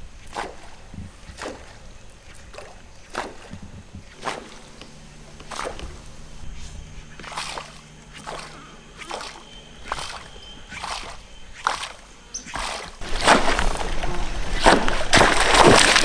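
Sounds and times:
fishing lure splashing on water: 0:00.2 - 0:06.1, 0:07.1 - 0:13.9.

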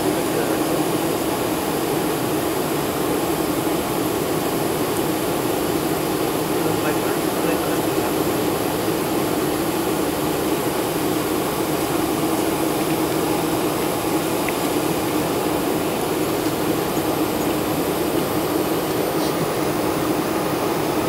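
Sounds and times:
jet engines droning: 0:00.0 - 0:21.0.

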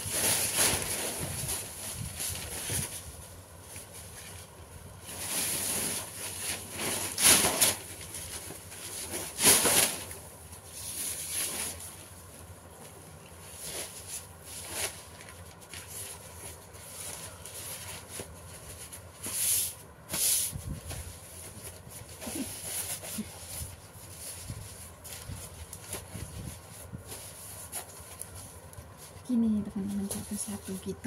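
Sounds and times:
paper rustling and crinkling: 0:00.0 - 0:31.0.

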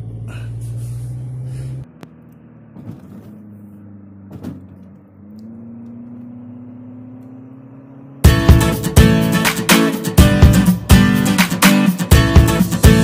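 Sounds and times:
road noise inside car: 0:00.0 - 0:09.3
car engine rising: 0:00.0 - 0:10.9.

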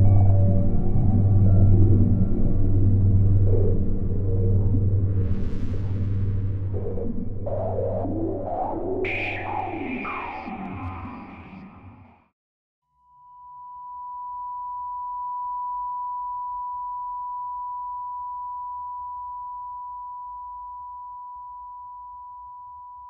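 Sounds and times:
electronic music: 0:00.0 - 0:12.3
pure electronic tone: 0:00.0 - 0:12.3.

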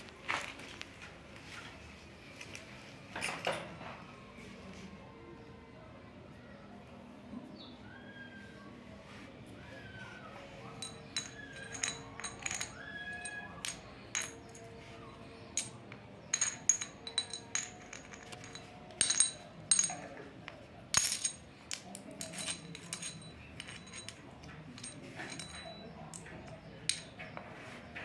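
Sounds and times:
coins clinking: 0:10.8 - 0:14.8, 0:15.5 - 0:20.1, 0:20.9 - 0:27.2.

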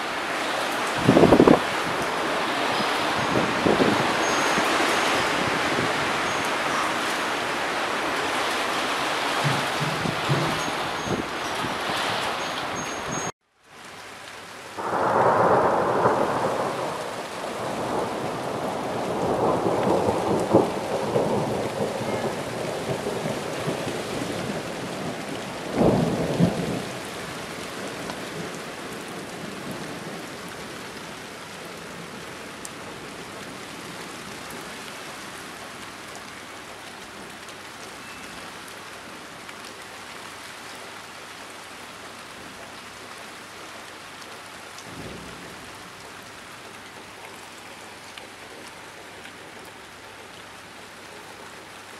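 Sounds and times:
steady rain: 0:00.0 - 0:51.9
thunder rumbling: 0:00.9 - 0:07.1, 0:09.1 - 0:13.3, 0:14.8 - 0:26.8.

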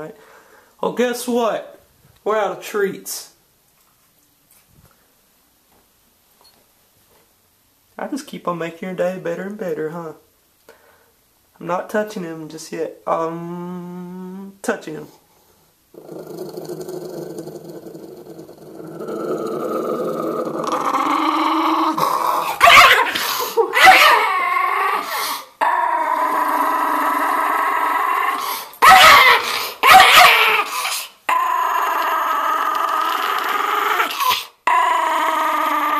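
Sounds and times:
dog growling: 0:15.9 - 0:35.9
dog barking loudly: 0:22.4 - 0:24.4, 0:28.8 - 0:31.0.

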